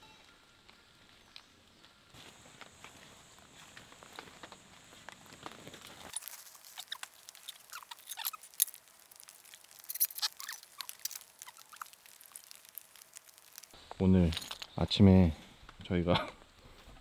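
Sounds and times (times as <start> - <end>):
raindrops ticking and plinking: 5.1 - 14.9.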